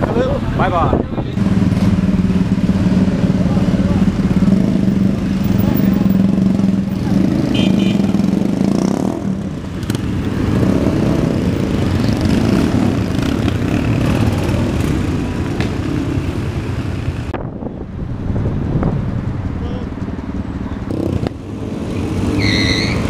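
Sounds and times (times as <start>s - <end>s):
motorcycles riding past: 1.4s - 17.3s, 18.1s - 23.0s.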